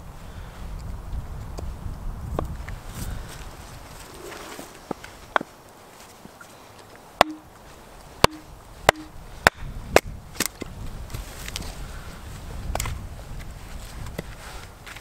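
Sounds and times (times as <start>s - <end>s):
hatchet knocking into log: 7.2s - 7.4s, 8.2s - 9.1s.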